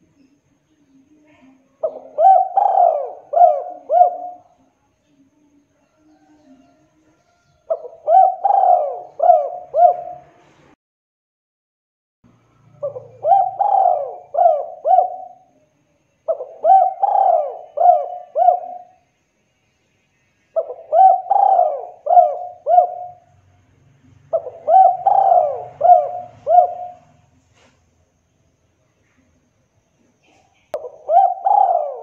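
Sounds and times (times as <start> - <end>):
dove cooing: 1.7 - 4.6, 7.6 - 10.4, 12.8 - 15.6, 16.3 - 19.0, 20.6 - 23.4, 24.1 - 27.4, 30.8 - 32.0.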